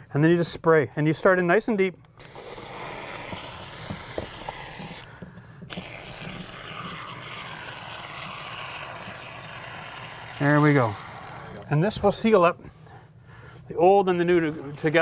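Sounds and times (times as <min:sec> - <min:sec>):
spray foam hissing: 0:02.2 - 0:05.0, 0:05.7 - 0:11.6.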